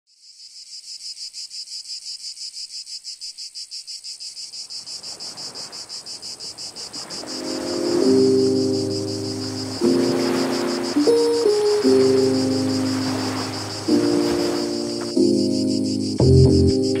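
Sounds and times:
insects pulsing buzz: 0:00.1 - 0:17.0
music: 0:07.3 - 0:17.0.

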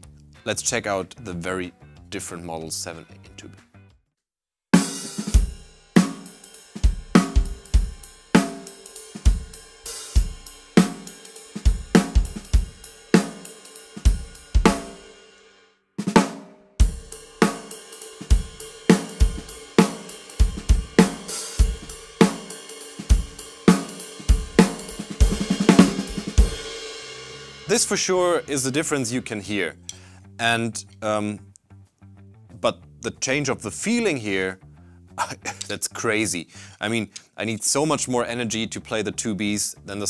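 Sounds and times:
drum kit groove: 0:04.8 - 0:15.2, 0:16.0 - 0:30.1, 0:35.2 - 0:36.0.

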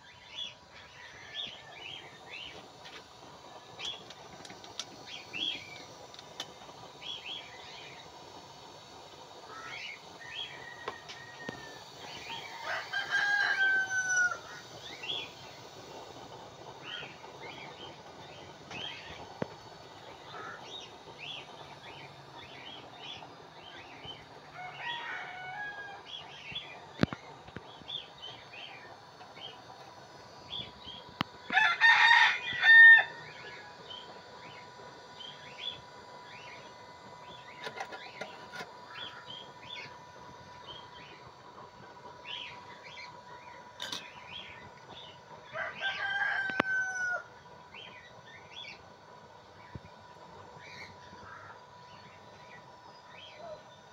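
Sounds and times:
rooster crowing: 0:10.2 - 0:14.7, 0:24.5 - 0:26.2, 0:31.5 - 0:33.6, 0:45.4 - 0:47.3
small birds chirping: 0:42.2 - 0:46.1, 0:47.6 - 0:48.9, 0:49.5 - 0:53.9.

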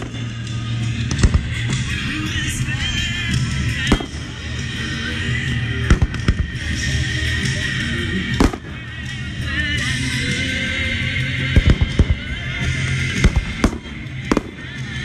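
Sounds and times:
fireworks bursting: 0:00.0 - 0:05.0, 0:05.8 - 0:06.9, 0:08.2 - 0:09.2, 0:11.5 - 0:12.4, 0:13.1 - 0:15.0
music playing: 0:00.0 - 0:15.0.

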